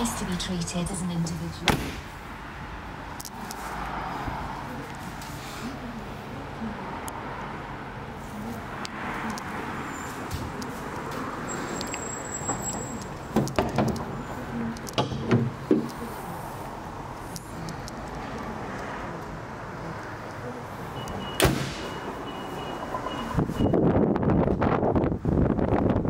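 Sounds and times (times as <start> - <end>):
car bonnet catch clunks: 15.0 - 15.9.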